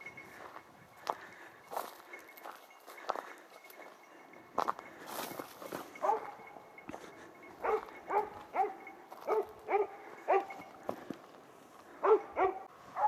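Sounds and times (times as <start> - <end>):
dog barking: 6.0 - 6.4, 7.6 - 10.6, 12.0 - 13.0.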